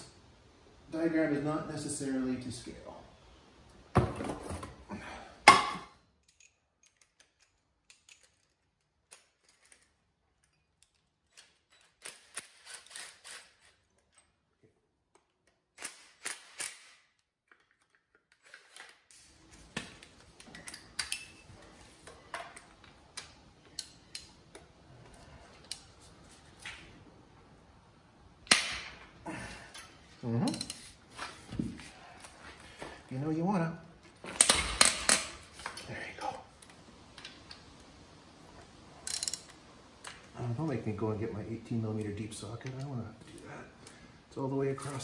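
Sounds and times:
ratchet and socket clicking: 39.1 - 39.6.

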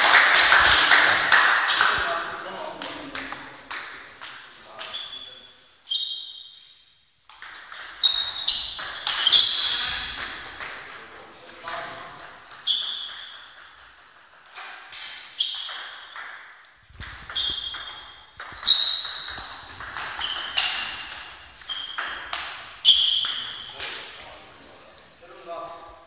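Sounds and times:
table tennis ball pinging: 7.3 - 24.1.

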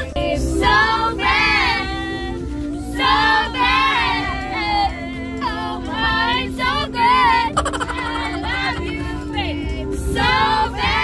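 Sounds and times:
held low notes: 7.3 - 10.6.

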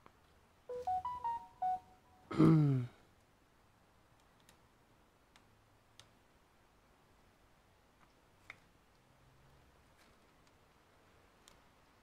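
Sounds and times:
electronic beeping tune: 0.7 - 2.0.

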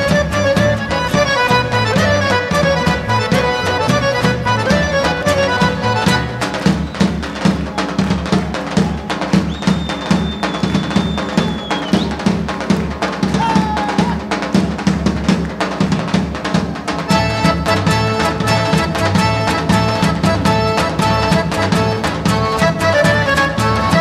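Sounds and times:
folk melody instruments: 0.0 - 24.0
rhythmic drum beats: 0.0 - 24.0
high whistle-like tone: 9.4 - 12.2.

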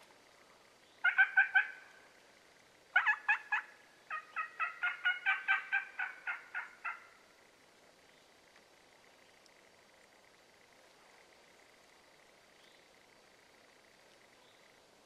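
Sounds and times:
wild turkeys calling: 0.5 - 2.2, 2.9 - 7.4.

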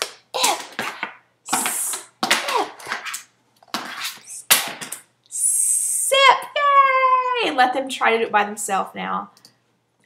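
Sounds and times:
woman sounding out syllables: 5.3 - 7.6.

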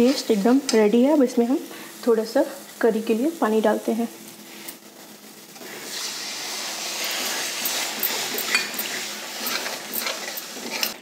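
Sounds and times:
steady hiss of frying: 0.0 - 11.0
spatula scraping a steel pan: 5.7 - 11.0.

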